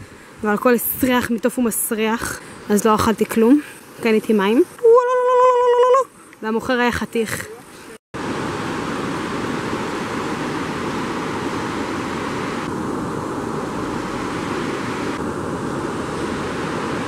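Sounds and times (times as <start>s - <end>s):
river rushing over rocks: 8.2s - 17.0s.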